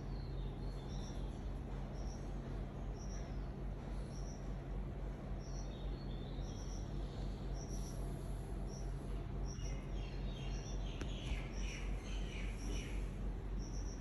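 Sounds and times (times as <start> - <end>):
small birds chirping: 0.0 - 14.0
steady low hum: 0.0 - 14.0.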